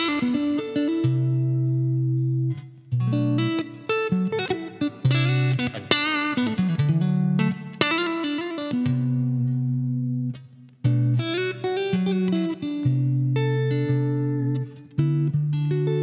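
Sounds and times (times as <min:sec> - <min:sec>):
electric guitar lead line: 0:00.0 - 0:16.0.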